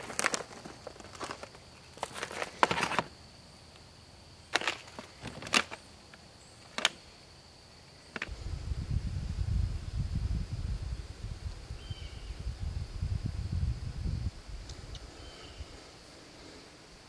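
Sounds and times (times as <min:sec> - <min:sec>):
food pouch crinkling: 0:00.0 - 0:03.1.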